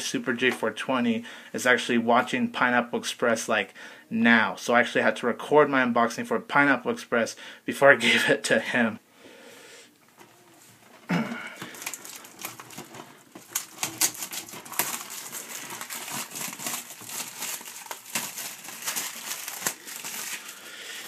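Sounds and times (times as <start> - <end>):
plastic wrap crinkling and tearing: 11.5 - 21.0.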